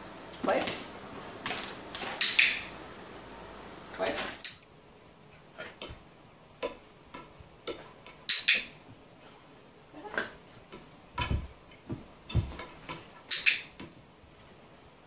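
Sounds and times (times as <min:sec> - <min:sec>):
board thumping against floor: 0:11.2 - 0:12.8.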